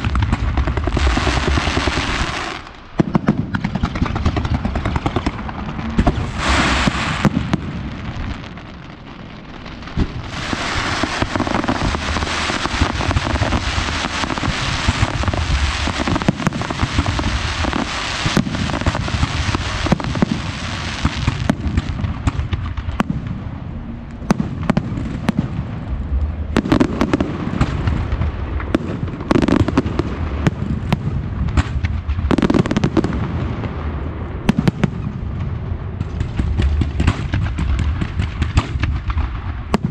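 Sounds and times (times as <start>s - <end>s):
fireworks crackling and banging: 0.0s - 39.9s.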